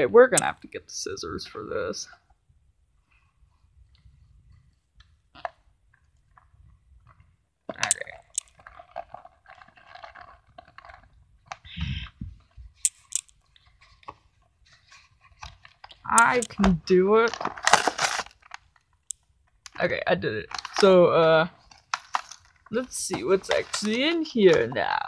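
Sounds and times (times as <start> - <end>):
plastic packaging crinkling: 7.8 - 19.8, 20.4 - 25.0
scissors cutting plastic: 16.0 - 18.6.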